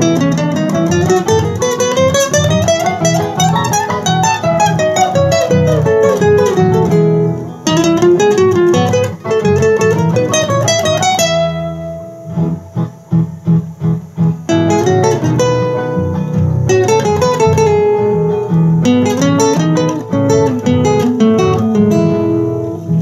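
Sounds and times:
fingerpicked classical guitar: 0:00.0 - 0:23.0.

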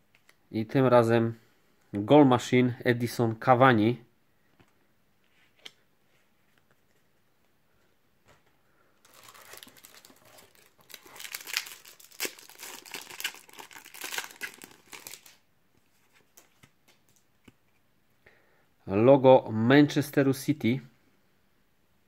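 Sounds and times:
wrapper crinkling and tearing: 0:09.0 - 0:15.4.

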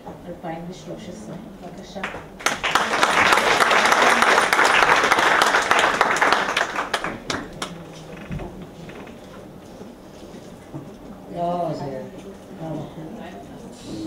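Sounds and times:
audience applauding: 0:02.0 - 0:08.3.

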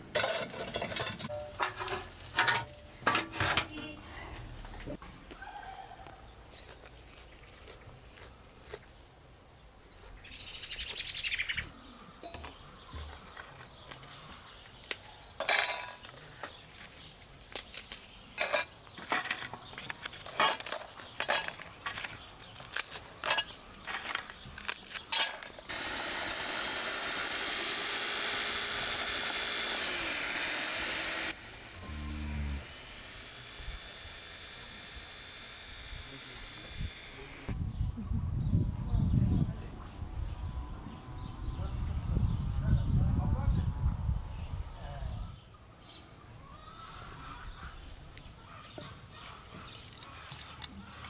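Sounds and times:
electric chopper motor grinding: 0:25.7 - 0:37.6.

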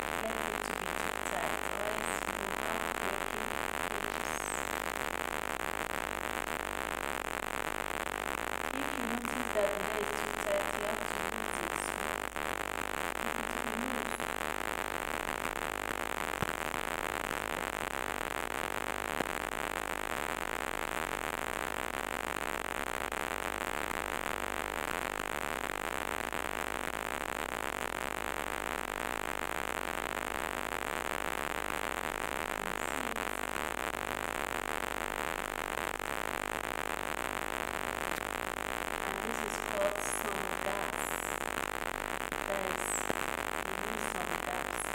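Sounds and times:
steady background hiss: 0:00.0 - 0:19.3, 0:28.5 - 0:44.9.

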